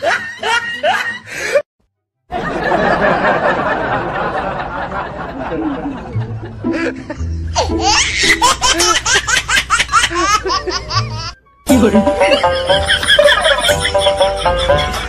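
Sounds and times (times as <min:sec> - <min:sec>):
high-pitched laughter: 0:06.7 - 0:15.0
music with low note: 0:11.0 - 0:15.0.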